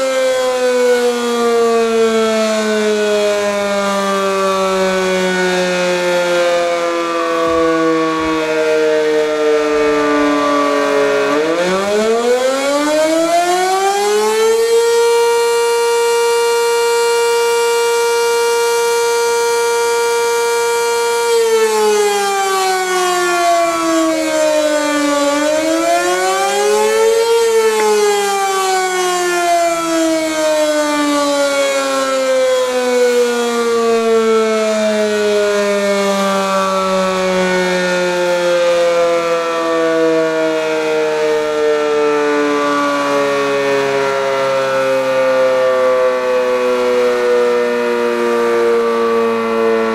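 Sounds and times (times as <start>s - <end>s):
rotating tornado siren: 0.0s - 49.9s.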